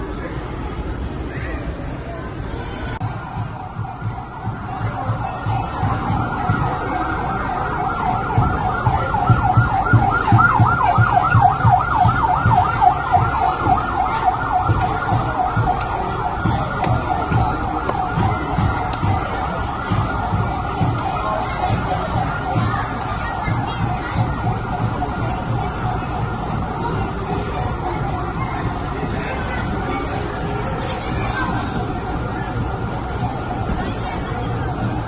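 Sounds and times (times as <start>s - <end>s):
siren yelping: 3.3s - 28.2s.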